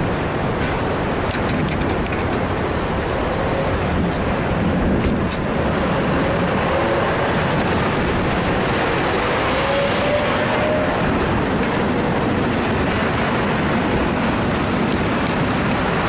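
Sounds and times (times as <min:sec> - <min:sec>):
road traffic rush: 0:00.0 - 0:16.0.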